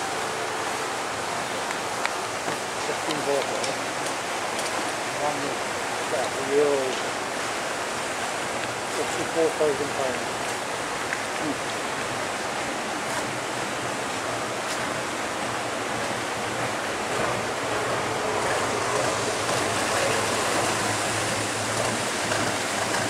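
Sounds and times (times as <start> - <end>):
churned water rushing: 0.0 - 23.0
low boat engine hum: 0.0 - 23.0.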